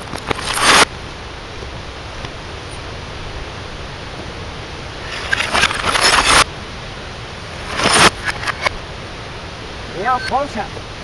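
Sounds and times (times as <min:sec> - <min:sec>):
reversed glass clattering rush: 0:00.0 - 0:00.9, 0:05.0 - 0:06.5, 0:07.5 - 0:08.8
outdoor background noise: 0:00.0 - 0:11.0.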